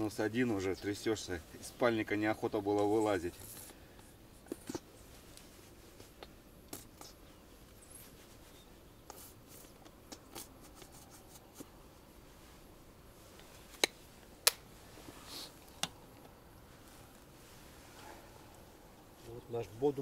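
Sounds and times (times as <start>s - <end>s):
light clicks and rustles: 2.7s - 11.8s.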